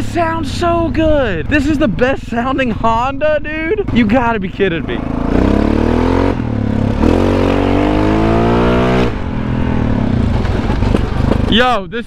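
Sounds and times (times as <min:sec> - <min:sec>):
atv engine accelerating: 0:03.8 - 0:11.6.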